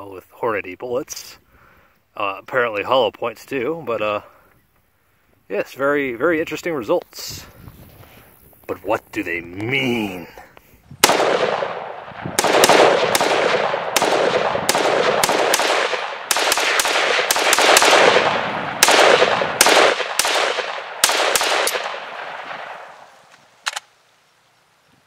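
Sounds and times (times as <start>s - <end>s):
rifle shots echoing: 11.0s - 23.9s.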